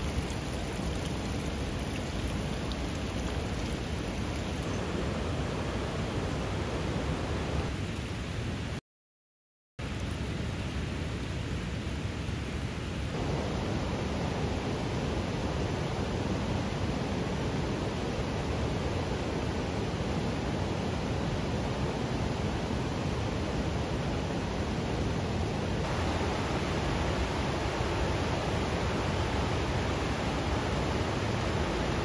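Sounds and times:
steady rushing noise: 0:13.1 - 0:32.0.

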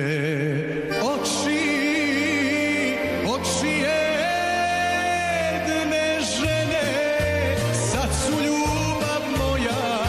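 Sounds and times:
band backing music: 0:00.0 - 0:10.0.

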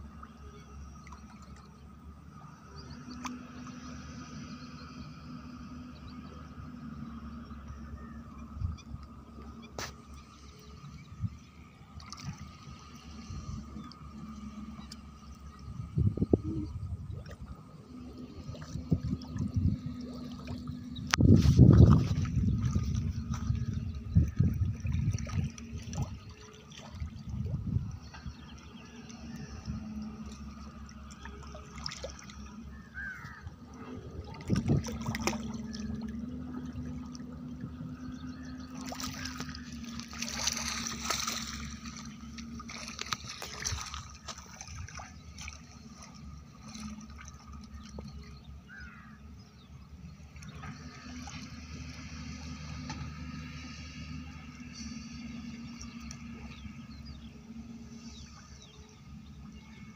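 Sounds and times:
water trickling and splashing: 0:00.0 - 0:59.9
bubbles: 0:33.7 - 0:37.8.

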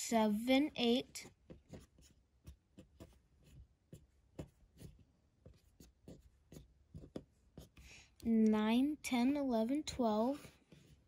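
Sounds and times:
fingertips tapping on tabletop: 0:01.2 - 0:07.9.

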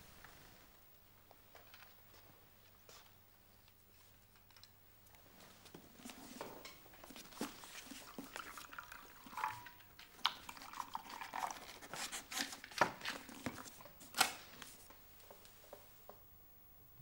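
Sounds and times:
book rustling: 0:06.0 - 0:08.5.

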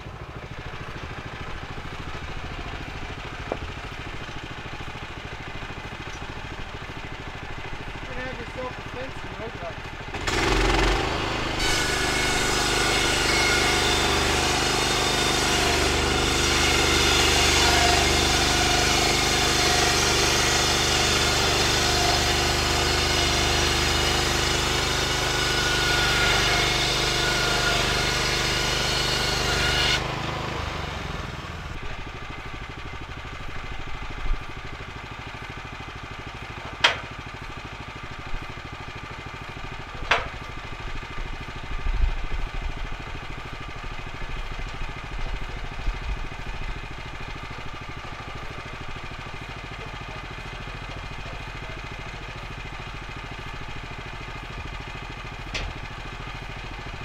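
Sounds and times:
sawmill engine drone: 0:00.0 - 0:57.0
sharp knocks of wood: 0:03.4 - 0:03.7, 0:36.7 - 0:37.1, 0:40.0 - 0:40.4
band blade sawing log: 0:08.0 - 0:31.7.

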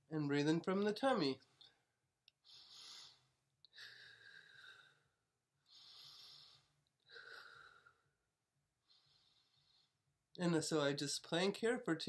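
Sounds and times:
woman breathing: 0:02.3 - 0:10.1.

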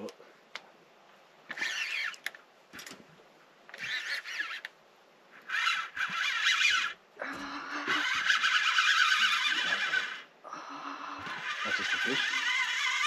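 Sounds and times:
fishing reel drag whining: 0:01.5 - 0:02.3, 0:03.7 - 0:04.7, 0:05.4 - 0:10.3, 0:10.9 - 0:13.0.

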